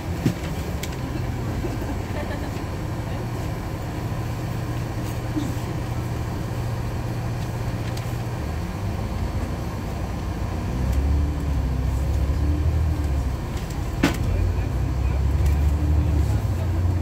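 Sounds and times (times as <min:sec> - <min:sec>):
bus engine drone: 0:00.0 - 0:17.0.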